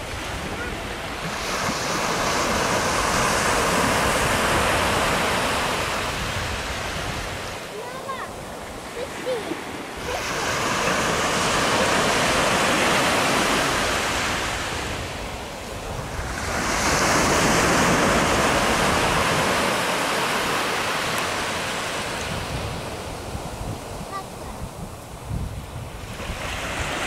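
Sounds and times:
wind rumble on microphone: 0.0s - 9.1s, 9.8s - 27.0s
surf breaking on beach: 0.0s - 27.0s.

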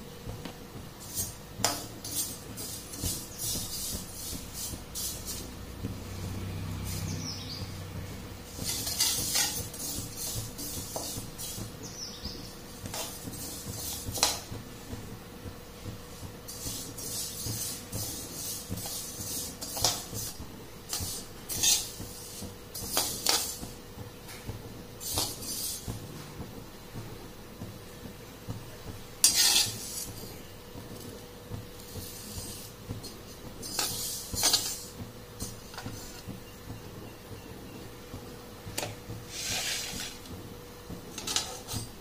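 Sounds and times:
spatula scraping seeds in pan: 1.0s - 7.6s, 8.2s - 14.5s, 16.0s - 23.8s, 25.0s - 25.9s, 29.2s - 36.3s, 38.8s - 40.3s, 41.1s - 42.0s.

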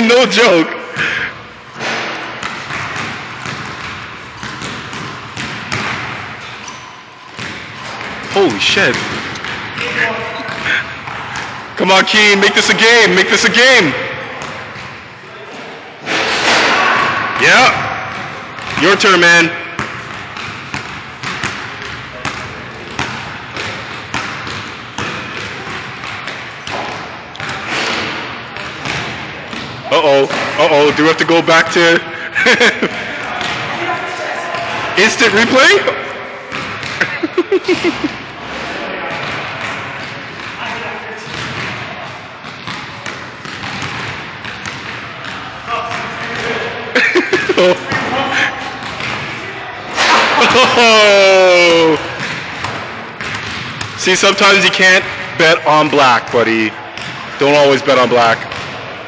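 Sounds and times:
basketball bouncing on gym floor: 0.9s - 11.8s, 13.8s - 15.1s, 17.0s - 31.4s, 32.4s - 33.8s, 36.5s - 38.3s, 39.1s - 49.4s, 50.4s - 54.1s, 55.0s - 59.0s.

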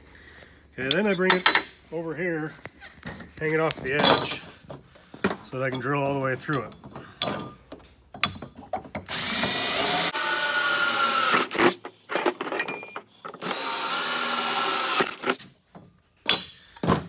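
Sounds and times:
drill boring through metal: 9.1s - 11.8s, 13.4s - 15.4s.

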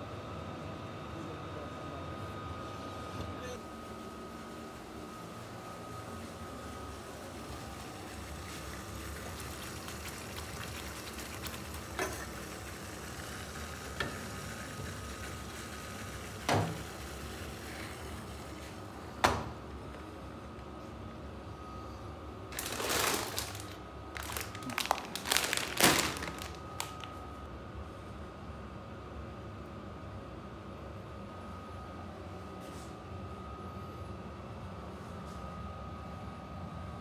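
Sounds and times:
plastic pasta bag crinkling: 22.5s - 27.2s.

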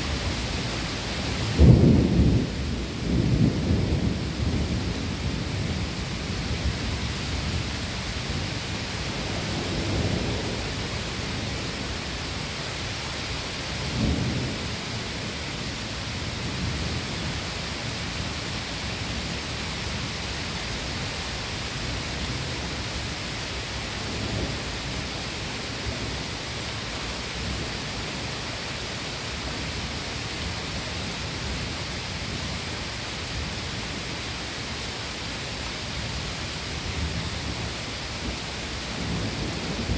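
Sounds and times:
steady rain: 0.0s - 39.9s
thunder rumbling: 1.3s - 7.7s, 38.2s - 39.9s.

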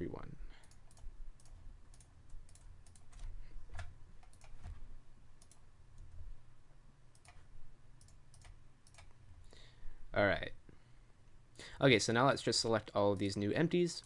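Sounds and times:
faint low hum: 0.0s - 14.0s
mouse and keyboard clicking: 0.6s - 4.8s.

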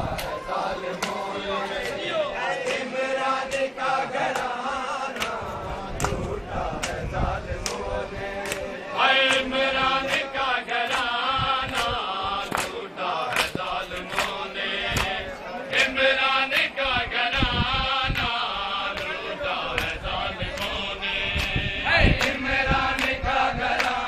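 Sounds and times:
men chanting in unison: 0.0s - 24.0s
chest-beating slaps: 10.9s - 15.2s.

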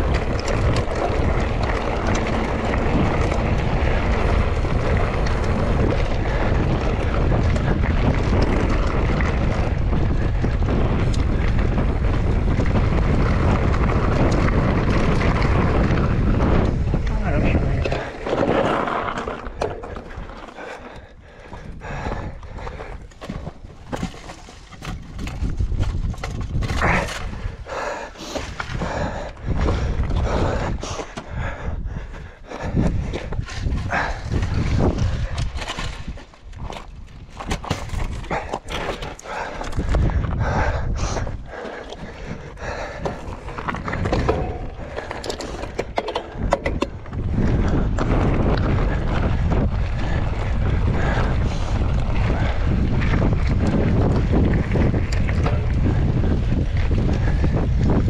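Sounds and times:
low rumble: 0.0s - 22.9s, 39.2s - 58.0s
bike rattling over rocks: 0.0s - 58.0s
wind buffeting microphone: 0.0s - 58.0s.

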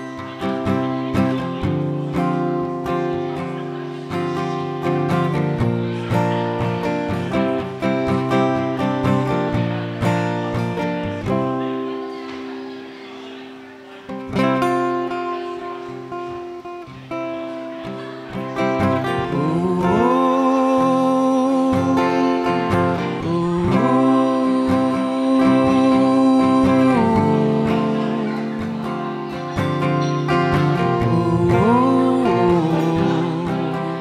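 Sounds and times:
acoustic guitar strumming: 0.0s - 34.0s
man singing: 19.0s - 34.0s.

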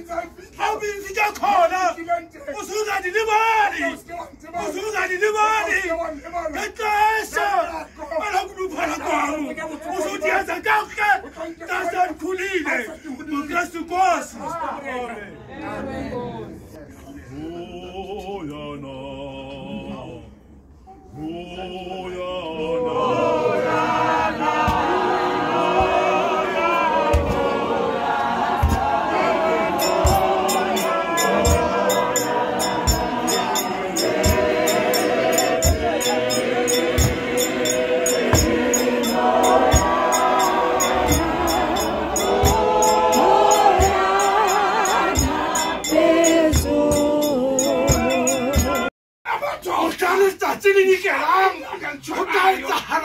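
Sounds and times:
choir singing a hymn: 21.2s - 48.9s
low drum thumps: 28.4s - 30.6s
high ticking beat: 28.5s - 48.9s.

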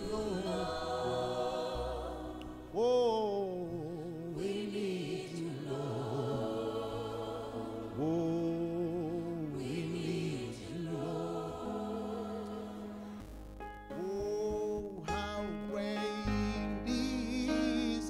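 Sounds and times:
voices singing long notes: 0.0s - 13.3s, 13.9s - 18.0s.

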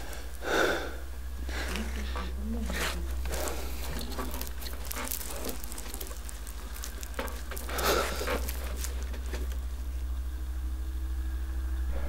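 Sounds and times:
man breathing heavily: 0.0s - 2.4s, 7.5s - 9.0s
low drone: 0.0s - 12.0s.

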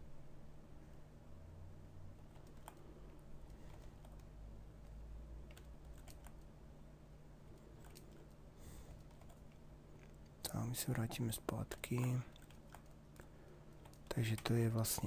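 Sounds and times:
steady low hum: 0.0s - 15.0s
keyboard and mouse clicks: 2.2s - 6.5s, 7.5s - 10.4s, 11.0s - 15.0s.

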